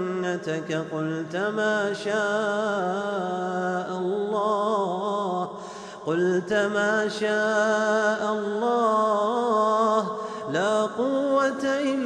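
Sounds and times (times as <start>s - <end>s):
man chanting verses: 0.0s - 12.0s.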